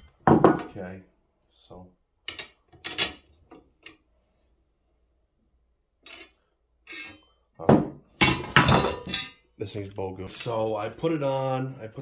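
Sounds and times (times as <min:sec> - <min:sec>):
steel parts clinking and clanking: 0:02.2 - 0:04.1, 0:06.0 - 0:07.5, 0:08.1 - 0:09.5.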